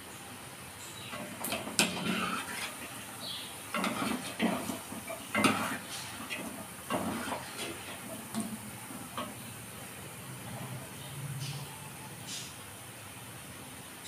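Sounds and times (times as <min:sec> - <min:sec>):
deep frying sizzle: 0:00.0 - 0:14.0
skimmer scraping clay pot: 0:01.1 - 0:09.5.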